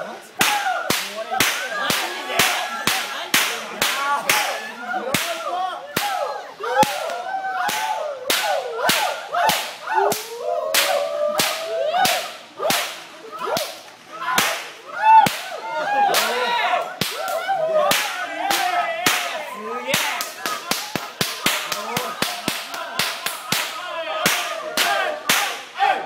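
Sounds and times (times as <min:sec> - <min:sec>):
whip cracking: 0:06.8 - 0:13.0, 0:14.4 - 0:14.7, 0:17.9 - 0:19.4.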